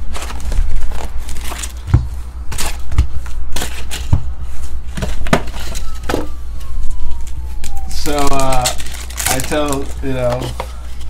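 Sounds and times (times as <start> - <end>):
card packs tapping and rustling: 0.0 - 4.2, 7.6 - 11.0
steady low hum: 0.0 - 11.0.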